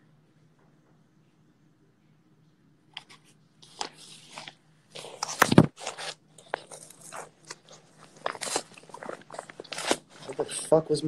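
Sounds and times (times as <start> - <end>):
paper and packaging rustling: 3.0 - 10.8.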